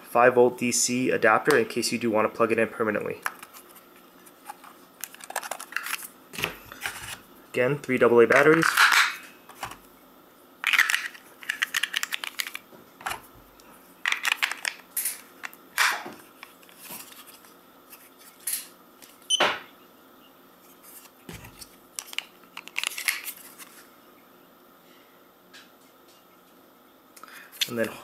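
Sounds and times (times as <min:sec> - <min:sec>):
batteries clicking into compartment: 0:10.6 - 0:13.2.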